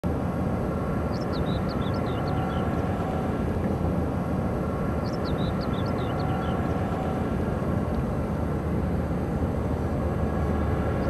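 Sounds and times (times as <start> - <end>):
faint machine hum: 0.0 - 11.0
small bird chirping: 1.1 - 2.8, 5.0 - 6.8.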